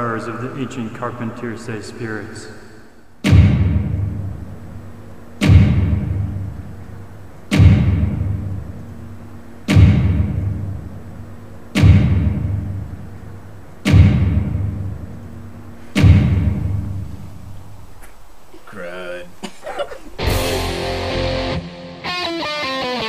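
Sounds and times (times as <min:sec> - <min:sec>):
deep dramatic boom hits: 0:03.2 - 0:04.6, 0:05.4 - 0:06.6, 0:07.5 - 0:08.7, 0:09.7 - 0:10.9, 0:11.7 - 0:13.0, 0:13.8 - 0:15.1, 0:15.9 - 0:17.1.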